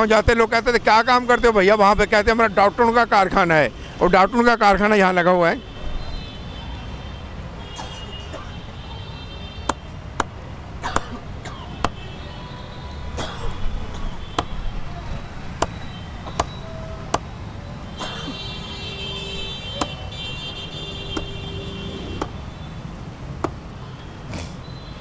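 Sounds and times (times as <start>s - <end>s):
street traffic: 0.0s - 25.0s
cleaver chopping twigs on wood: 9.7s - 11.2s, 19.8s - 20.0s, 22.2s - 22.4s, 23.4s - 23.6s
vehicle horn: 18.0s - 22.7s.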